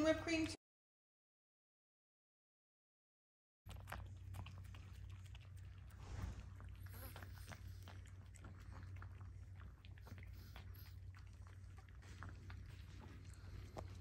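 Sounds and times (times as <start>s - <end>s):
dog licking and lapping: 3.7s - 14.0s
steady low hum: 3.7s - 14.0s.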